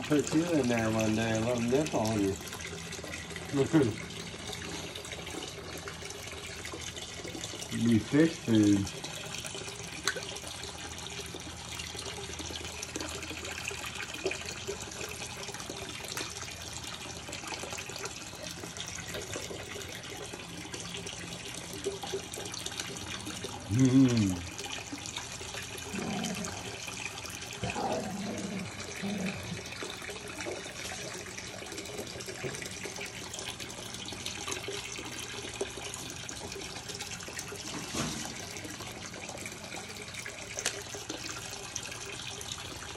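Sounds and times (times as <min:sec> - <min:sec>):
aquarium water splashing: 0:00.0 - 0:42.9
person vocal sound: 0:23.7 - 0:24.4.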